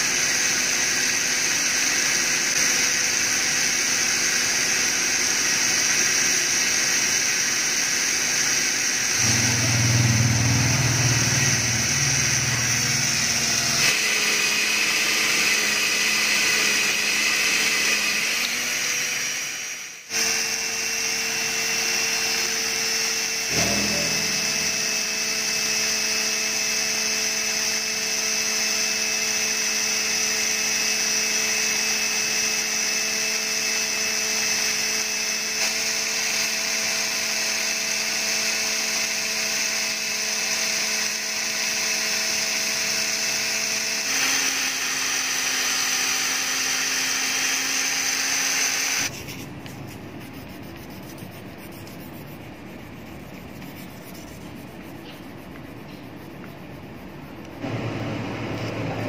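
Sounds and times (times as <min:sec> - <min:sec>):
electric drill running: 0:00.0 - 0:49.4, 0:56.9 - 0:59.0
sandpaper rubbing on metal: 0:49.1 - 0:57.6.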